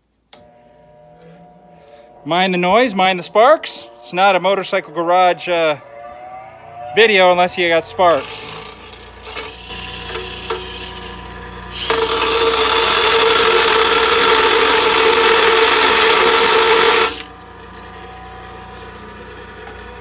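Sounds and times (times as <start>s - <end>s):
bench grinder running: 0.4s - 20.0s
metal grinding hiss with whine: 1.1s - 17.5s.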